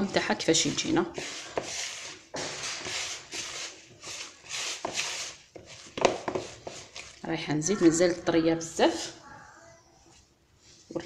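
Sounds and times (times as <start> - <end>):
hand kneading sticky dough: 0.0 - 8.2.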